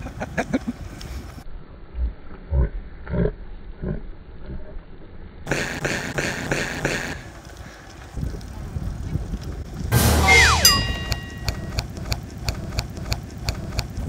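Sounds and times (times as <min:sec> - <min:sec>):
slowed-down laughter: 0:00.0 - 0:01.2, 0:01.9 - 0:04.9.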